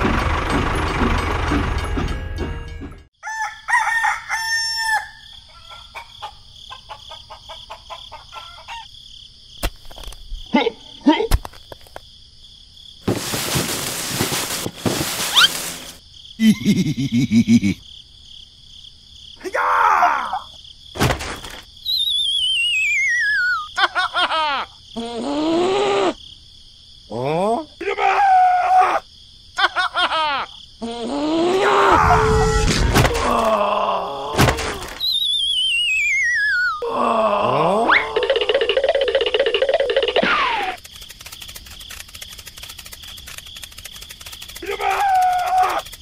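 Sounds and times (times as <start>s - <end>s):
rooster crowing: 3.2s - 6.4s
descending wobbling whistle: 21.9s - 23.6s, 35.0s - 36.8s
drawn-out cartoon voice: 44.6s - 46.0s.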